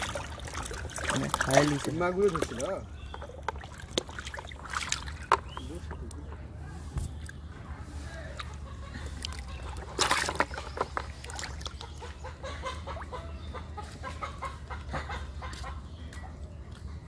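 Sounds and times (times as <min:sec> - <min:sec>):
fish splashing in water: 0:00.0 - 0:06.0, 0:08.4 - 0:13.2
hen clucking: 0:08.4 - 0:16.0.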